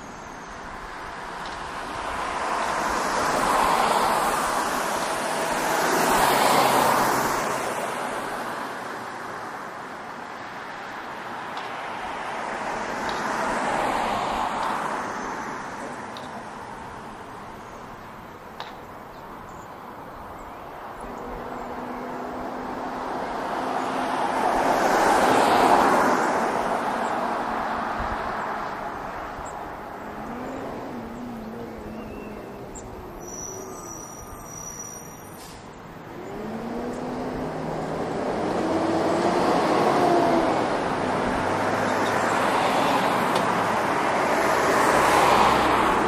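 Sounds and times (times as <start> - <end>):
vehicle passing by: 2.0 - 8.6, 20.9 - 34.4, 35.5 - 46.0
vehicle approaching: 20.7 - 46.0.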